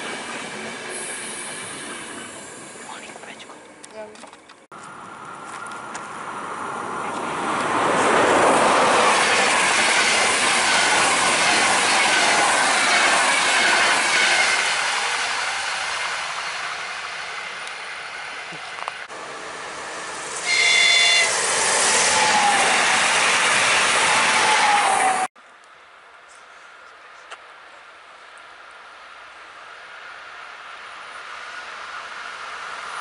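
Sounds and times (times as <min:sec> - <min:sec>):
train passing at speed: 0:00.0 - 0:03.4, 0:04.9 - 0:25.3, 0:28.8 - 0:33.0
train horn blast: 0:10.1 - 0:11.1, 0:20.4 - 0:21.5.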